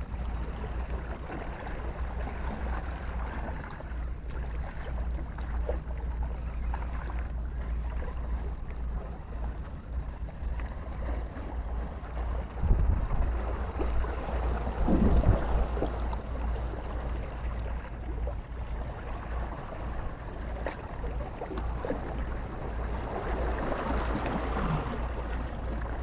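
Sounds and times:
water lapping against rocks: 0.0 - 26.0
faint ticks: 0.1 - 22.3
wind rumbling on microphone: 6.6 - 26.0.

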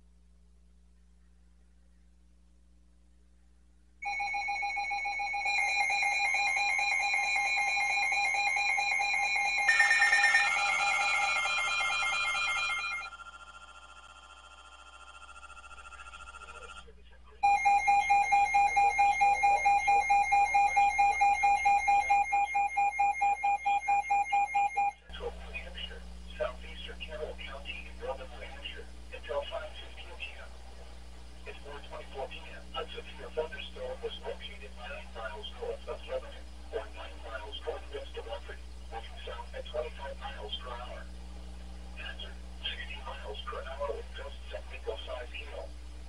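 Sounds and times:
electronic alarm tones: 4.0 - 16.6, 17.4 - 25.0
rapidly pulsing beep: 4.0 - 16.8, 17.4 - 25.0.

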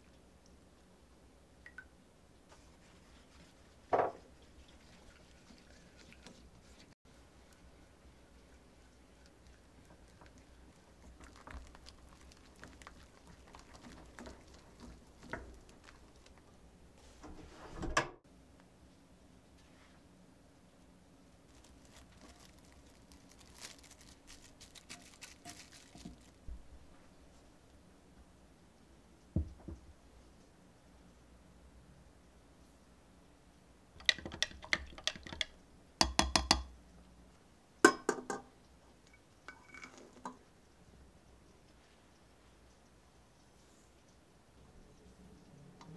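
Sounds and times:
soft wet stirring: 0.0 - 17.3, 20.7 - 27.8, 34.0 - 45.9
spoon tapping against glass jug: 34.0 - 36.7, 37.9 - 38.5.

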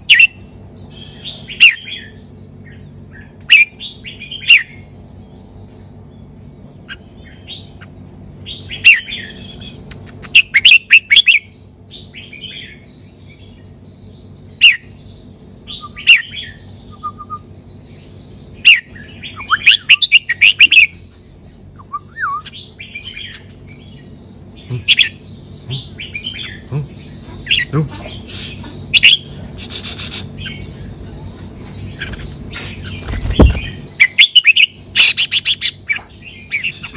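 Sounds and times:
bulbul singing whistled phrases: 8.6 - 12.8, 15.6 - 17.6, 18.5 - 21.0, 21.6 - 31.0, 32.6 - 36.9.

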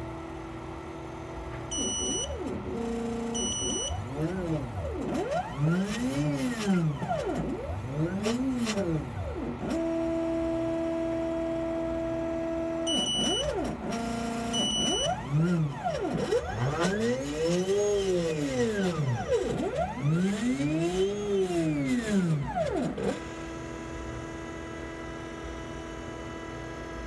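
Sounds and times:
stepper motors whining: 1.7 - 11.9, 12.5 - 23.4.

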